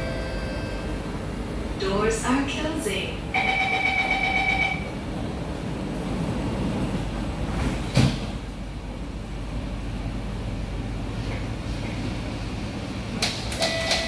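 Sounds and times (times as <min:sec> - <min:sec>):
low carriage hum: 0:00.0 - 0:13.7
door-closing warning tone: 0:03.4 - 0:04.9, 0:13.5 - 0:14.0
sliding doors thumping shut: 0:07.6 - 0:08.4.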